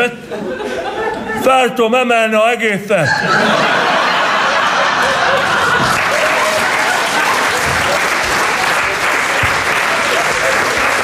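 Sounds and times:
audience applause: 3.8s - 11.0s.

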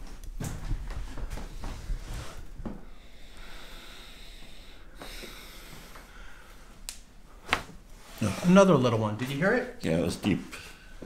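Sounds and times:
soft breathing: 0.8s - 8.4s.

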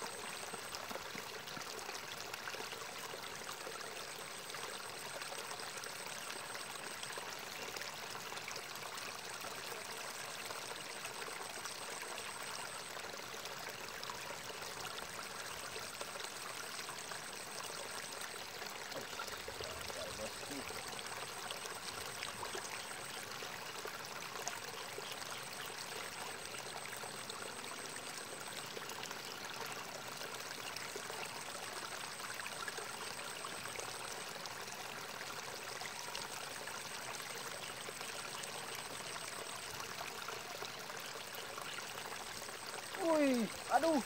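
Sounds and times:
water trickling in a ditch: 0.0s - 44.0s.

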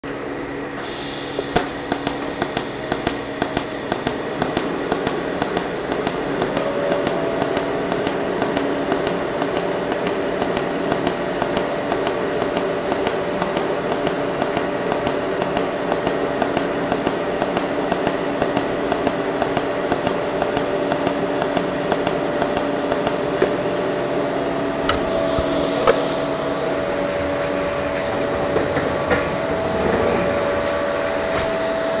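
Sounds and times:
welding arc buzzing hiss: 0.2s - 32.0s
welding arc pulse ticks: 0.7s - 23.9s.

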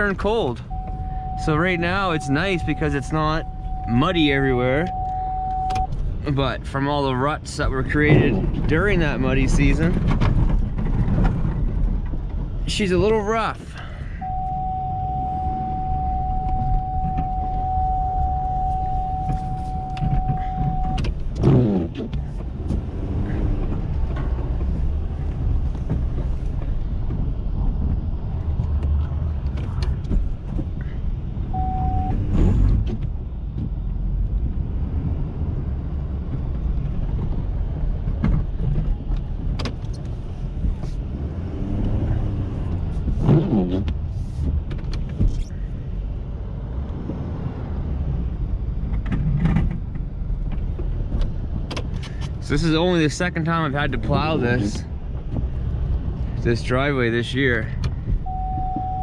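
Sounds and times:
steady warning tone: 0.0s - 5.9s, 14.2s - 21.0s, 31.5s - 32.3s, 58.2s - 59.0s
diesel engine under load: 0.0s - 59.0s.

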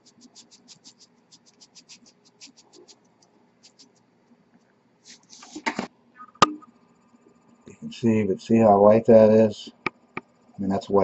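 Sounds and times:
dry scratching ticks: 0.0s - 5.8s.

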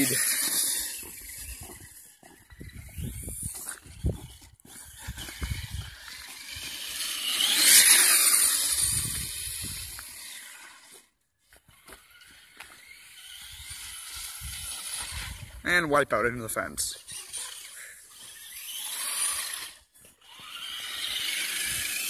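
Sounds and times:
electric motor whine: 0.0s - 15.6s, 17.0s - 22.0s
wind rumble on microphone: 1.4s - 6.1s, 8.7s - 10.1s, 13.5s - 15.6s.

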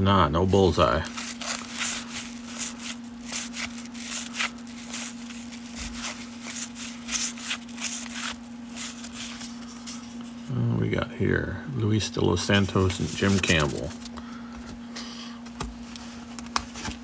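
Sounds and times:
cards swishing against each other: 0.5s - 10.4s, 12.5s - 14.1s.

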